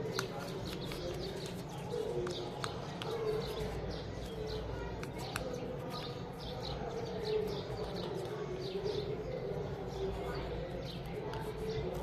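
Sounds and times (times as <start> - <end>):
paper being folded: 0.0 - 6.3
small birds chirping: 0.0 - 12.0.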